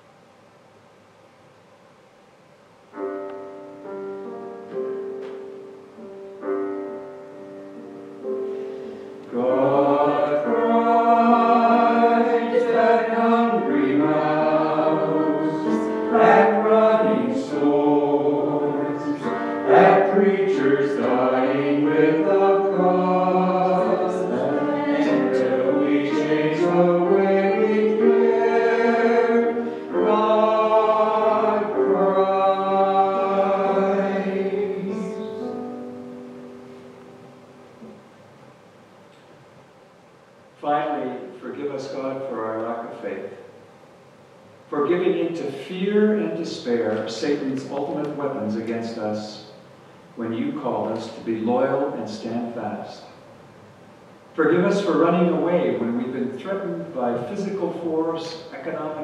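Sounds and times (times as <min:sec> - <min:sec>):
piano notes: 0:02.9 - 0:39.1
mixed voices singing a hymn: 0:08.8 - 0:35.9.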